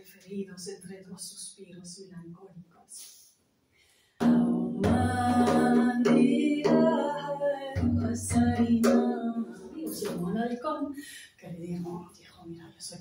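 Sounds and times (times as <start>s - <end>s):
woman singing slow melody: 4.2s - 10.8s.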